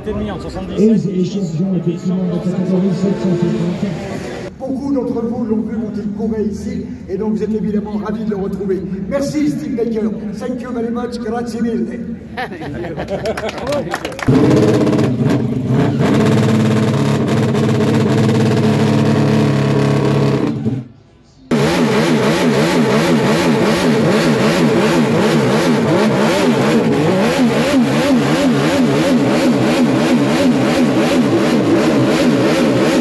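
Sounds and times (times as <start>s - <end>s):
motorcycle engine revving: 14.3s - 20.9s, 21.5s - 33.0s.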